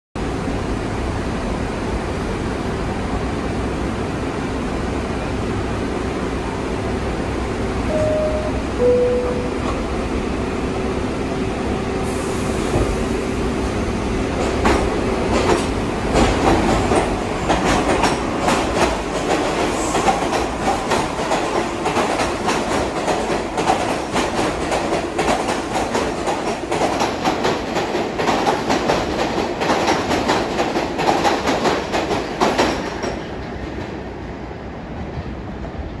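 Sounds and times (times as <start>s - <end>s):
subway train humming: 0.2s - 36.0s
train wheels clicking over rail joints: 14.4s - 34.0s.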